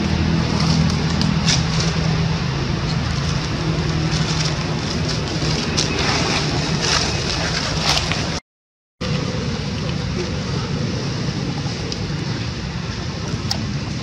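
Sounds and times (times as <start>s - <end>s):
crackles of dry leaves: 0.0s - 8.4s
low motor-like drone: 0.0s - 8.4s, 9.0s - 14.0s.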